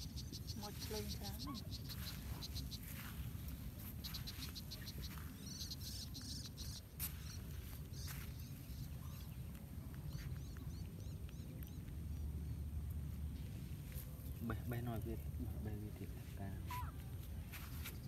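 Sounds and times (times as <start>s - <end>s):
insects chirping: 0.0s - 7.0s
steady low rumble: 0.0s - 16.3s
birds chirping: 0.0s - 18.0s.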